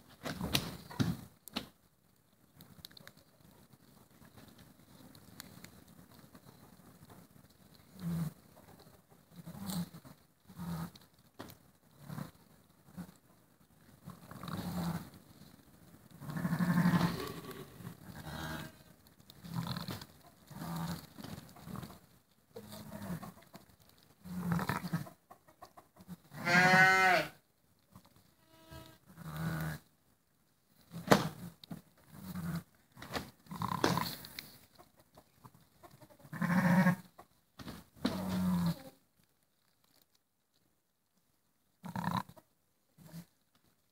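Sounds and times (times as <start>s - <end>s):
ewe bleating softly: 16.2s - 18.9s, 26.0s - 27.4s, 28.4s - 29.0s, 36.0s - 37.1s.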